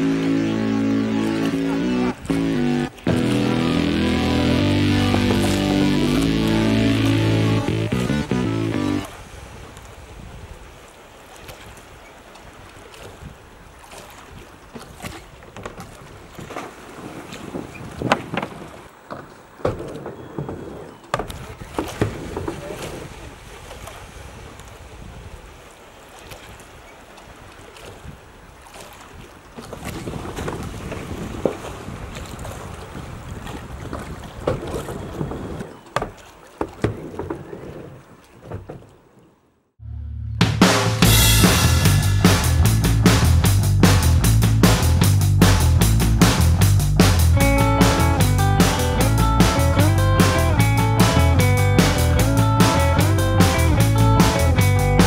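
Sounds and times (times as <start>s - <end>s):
water splashing: 0.0s - 39.5s, 40.7s - 55.0s
wind buffeting microphone: 14.2s - 25.7s, 27.4s - 38.9s.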